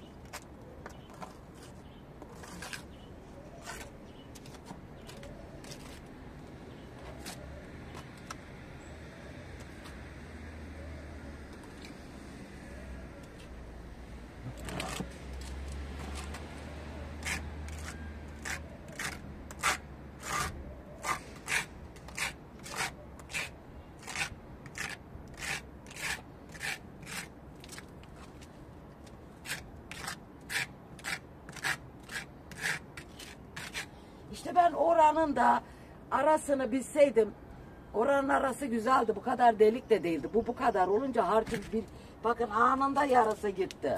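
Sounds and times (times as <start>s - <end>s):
spatula scraping wet plaster: 2.3s - 2.9s, 3.6s - 6.0s, 17.2s - 27.8s, 29.4s - 33.9s.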